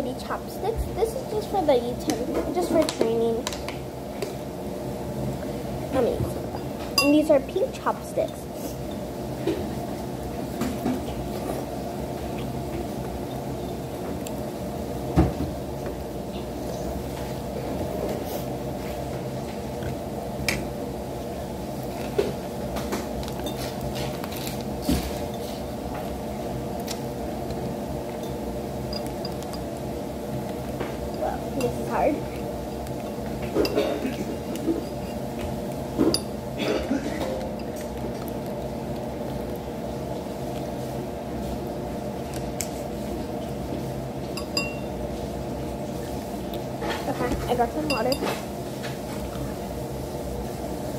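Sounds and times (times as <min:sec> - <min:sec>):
steady low hum: 0:00.0 - 0:50.9
chopsticks clinking on a bowl: 0:44.4 - 0:44.9, 0:47.8 - 0:48.4.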